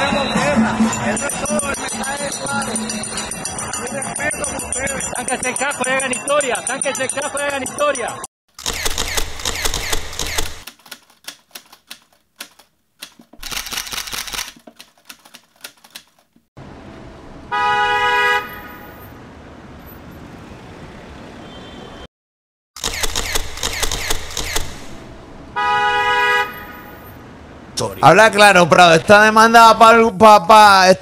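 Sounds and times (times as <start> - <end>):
rapid irregular clicking: 8.5 - 16.5
car horn honking: 17.5 - 19.1, 21.3 - 22.1, 25.5 - 27.1.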